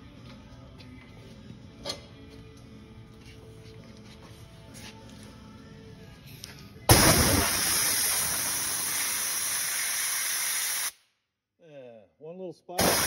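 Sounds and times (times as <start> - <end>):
compressed air hissing: 6.9 - 11.0, 12.8 - 13.0.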